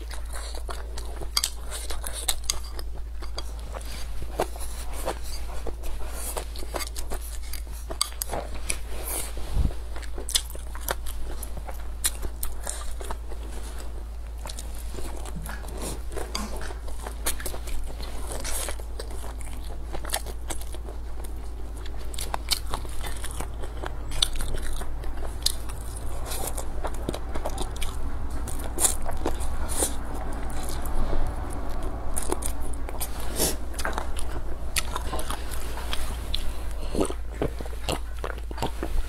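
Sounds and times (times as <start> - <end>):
close chewing and biting: 0.0 - 39.0
steady low hum: 0.0 - 39.0.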